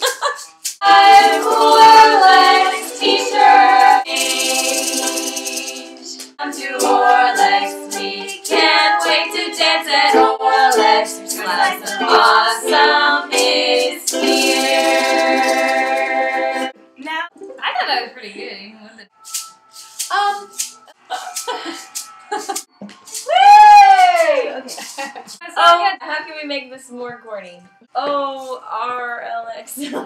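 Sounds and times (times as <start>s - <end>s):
strummed ukuleles: 0.0s - 18.4s
women singing together: 0.8s - 16.8s.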